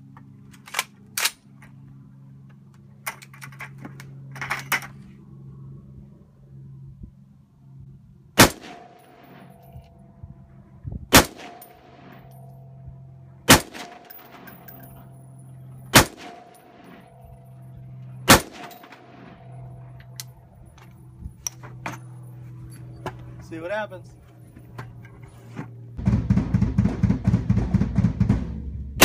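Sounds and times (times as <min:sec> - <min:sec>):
rifle shots: 0:08.4 - 0:09.6, 0:11.1 - 0:12.3, 0:13.5 - 0:14.7, 0:15.9 - 0:17.2, 0:18.2 - 0:19.5
metallic ring: 0:08.8 - 0:10.7, 0:11.4 - 0:25.5.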